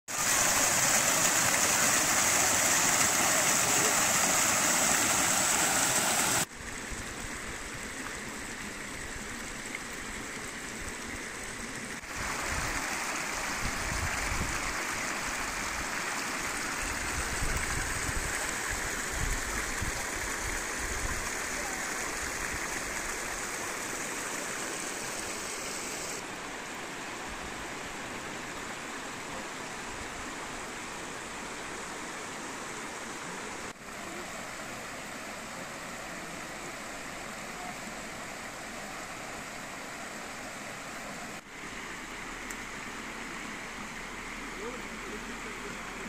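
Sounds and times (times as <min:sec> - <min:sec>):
waterfall rushing: 0:00.1 - 0:06.5, 0:12.0 - 0:26.4.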